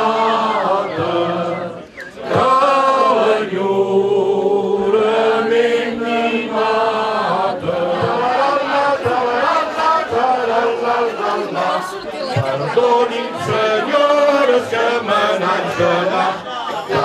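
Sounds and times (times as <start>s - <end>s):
people singing in chorus: 0.0s - 17.0s.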